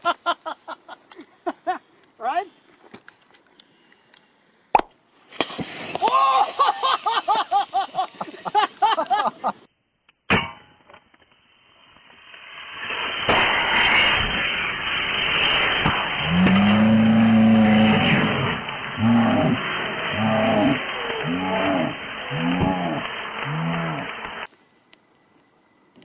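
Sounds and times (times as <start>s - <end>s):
battery venting sputter: 6.0s - 9.3s, 12.3s - 26.0s
roar of flame jetting: 12.2s - 24.5s
low steady tone: 24.6s - 26.0s.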